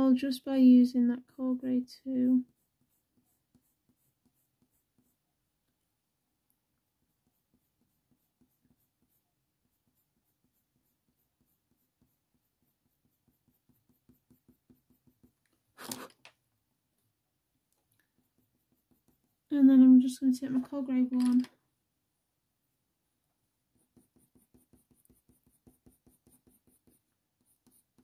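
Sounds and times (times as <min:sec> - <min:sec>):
colour pencil scratching on paper: 0:01.4 - 0:05.3, 0:06.8 - 0:16.2, 0:18.0 - 0:21.3, 0:23.7 - 0:28.0.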